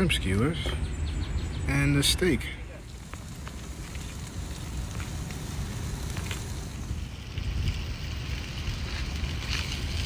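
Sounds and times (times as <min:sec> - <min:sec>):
wind rumbling on microphone: 0:02.6 - 0:10.0.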